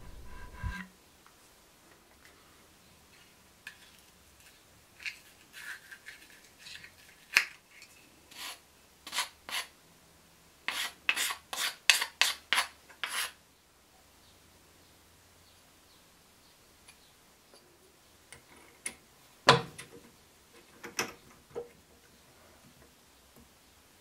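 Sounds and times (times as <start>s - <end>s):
hand scraping carbon fiber disc: 0.0s - 0.9s.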